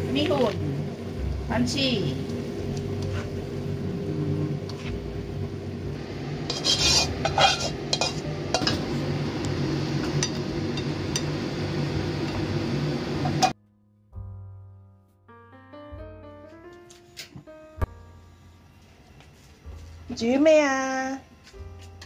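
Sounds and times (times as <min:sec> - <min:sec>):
steady hum: 0:00.0 - 0:13.6, 0:17.5 - 0:21.8
spatula scraping in wok: 0:03.0 - 0:03.4, 0:06.3 - 0:08.8
utensil clinking on cookware: 0:06.5 - 0:08.8
soft piano music: 0:07.3 - 0:11.4, 0:13.3 - 0:22.0.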